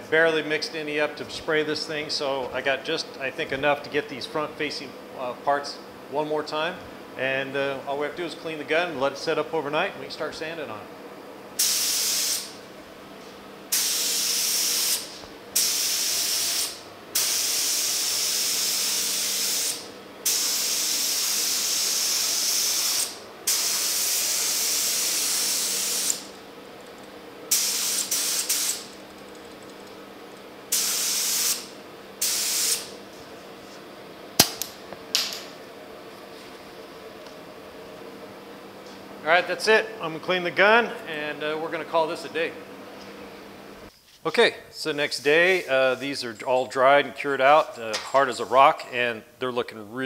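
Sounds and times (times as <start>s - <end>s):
spray gun hissing: 11.6s - 12.5s, 13.7s - 26.3s, 27.5s - 28.9s, 30.7s - 32.9s
sharp click: 34.4s - 35.4s.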